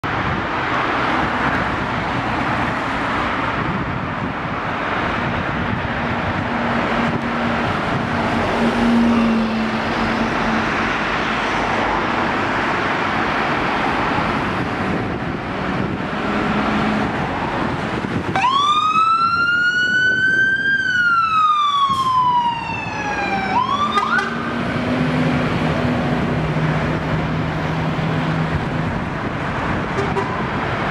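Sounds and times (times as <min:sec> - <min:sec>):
siren wailing and yelping: 0:18.4 - 0:24.4.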